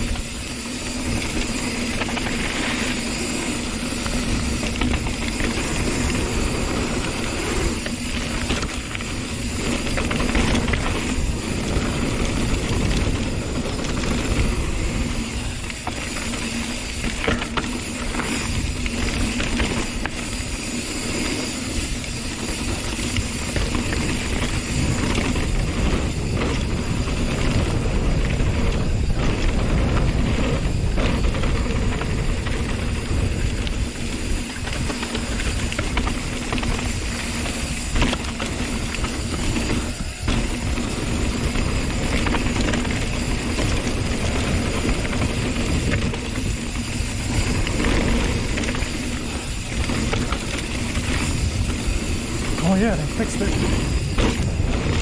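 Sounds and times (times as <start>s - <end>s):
bike rattling over bumps: 0.0s - 55.0s
tyres rolling on dirt trail: 0.0s - 55.0s
wind on microphone: 21.5s - 55.0s.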